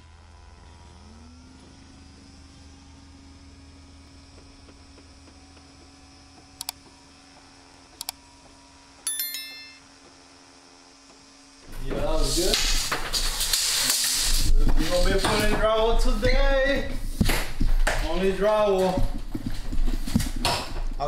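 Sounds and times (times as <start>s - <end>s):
short ringing bell chime: 9.1s - 9.9s.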